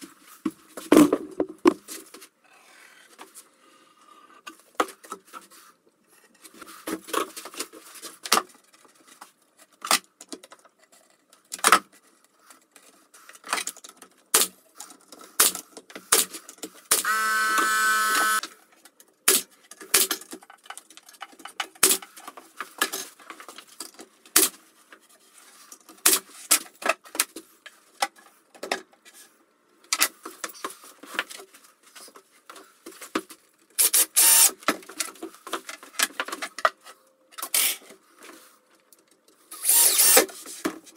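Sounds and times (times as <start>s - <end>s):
cordless drill running: 16.9s - 18.4s, 34.2s - 34.5s, 39.6s - 40.2s
pneumatic nail gun shots: 16.9s - 18.4s, 33.8s - 34.6s, 39.6s - 40.4s
steady whirring tone: 17.0s - 18.4s.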